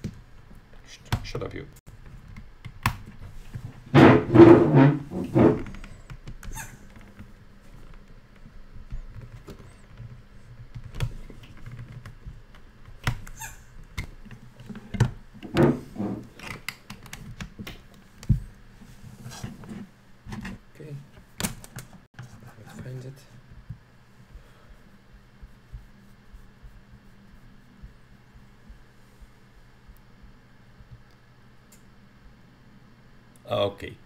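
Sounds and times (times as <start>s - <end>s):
cable rubbing and rustling: 3.0s - 6.2s, 6.8s - 20.6s.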